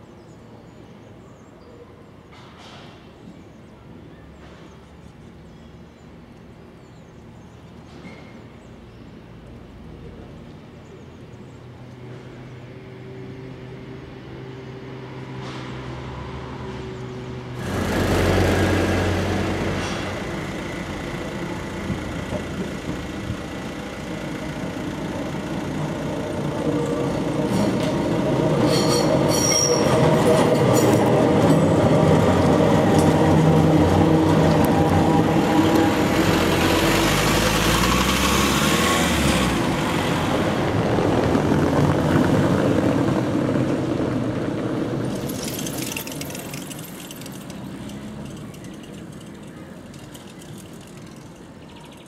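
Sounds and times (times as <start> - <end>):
tram approaching on track: 0.0 - 52.0
box truck passing by: 14.9 - 51.7
tram wheels clicking: 17.5 - 52.0.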